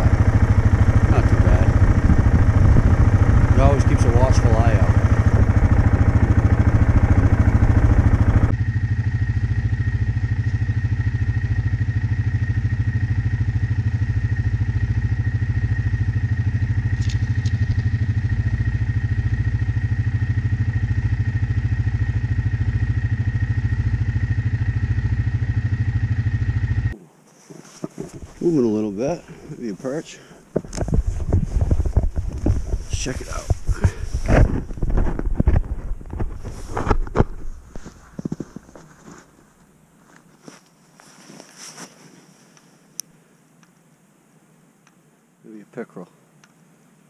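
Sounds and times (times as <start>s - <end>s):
small vehicle engine running: 0.0s - 27.0s, 30.7s - 38.4s
faint high whine: 0.0s - 47.0s.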